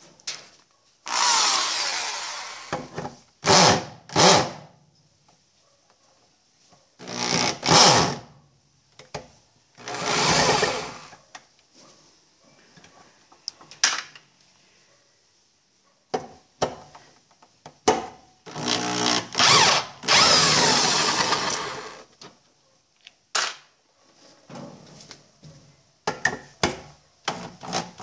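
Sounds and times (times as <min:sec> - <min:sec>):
electric drill bursts: 0:01.1 - 0:02.8, 0:09.8 - 0:11.1, 0:18.5 - 0:22.1.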